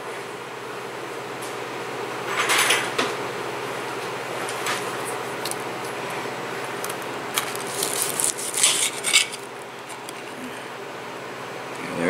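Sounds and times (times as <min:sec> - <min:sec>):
steady low hum: 0:00.0 - 0:12.0
knife scraping a plate: 0:08.2 - 0:09.5.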